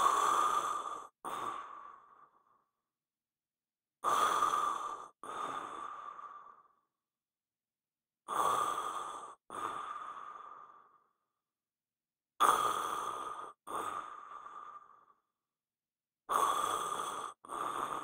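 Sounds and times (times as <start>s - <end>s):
person snoring: 16.3s - 18.0s.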